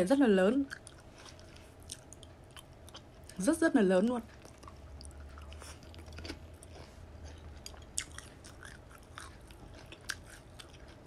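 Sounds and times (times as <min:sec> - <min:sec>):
low steady hum: 0:00.0 - 0:11.0
quiet chewing and mouth clicks: 0:00.7 - 0:03.4, 0:04.3 - 0:11.0.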